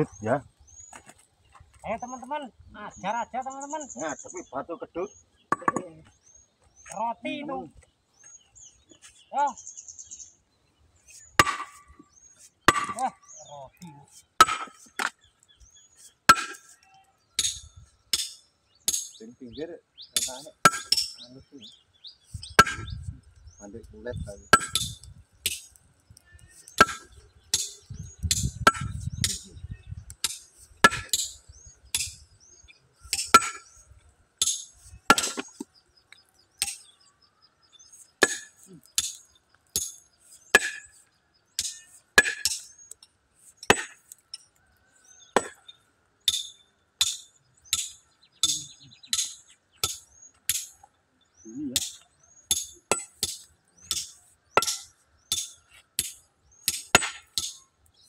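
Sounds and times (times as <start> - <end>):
hammer striking boulder: 11.4 - 11.8, 22.5 - 23.0, 26.8 - 29.4, 45.3 - 45.6, 51.8 - 57.6.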